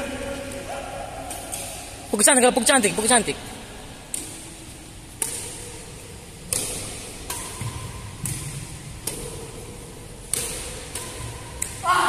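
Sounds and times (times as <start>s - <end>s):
rackets hitting shuttlecock: 4.0s - 11.9s.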